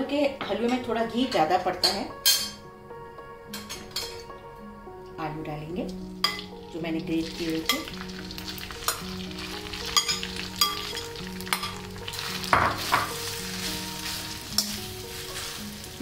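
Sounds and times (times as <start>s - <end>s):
potatoes sizzling in hot oil: 6.2s - 16.0s
steel spoon scraping a pan: 10.0s - 15.8s.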